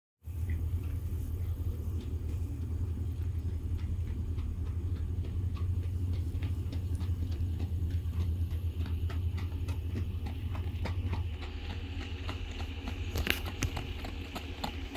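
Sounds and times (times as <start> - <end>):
steady low rumble: 0.2 - 14.9
horse hoofbeats on gravel: 0.5 - 14.9.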